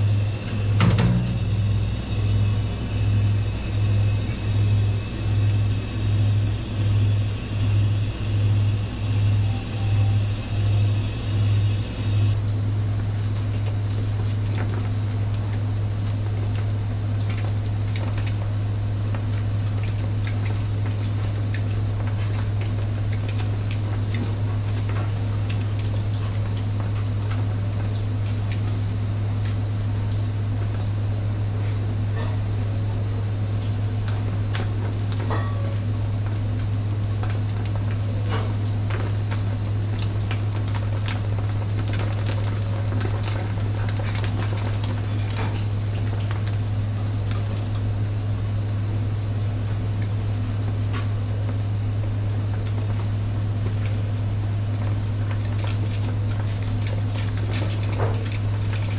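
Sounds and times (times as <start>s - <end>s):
crackles from grilling fish: 0.0s - 12.4s, 33.8s - 48.6s
low machine hum: 0.0s - 58.9s.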